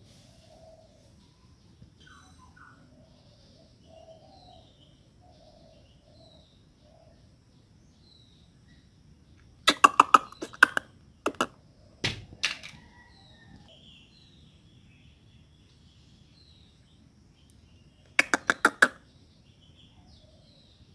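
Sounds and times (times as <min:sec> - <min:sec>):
faint bird chirps: 0:00.0 - 0:20.9
squirrel chattering call: 0:09.6 - 0:11.6, 0:18.1 - 0:19.1.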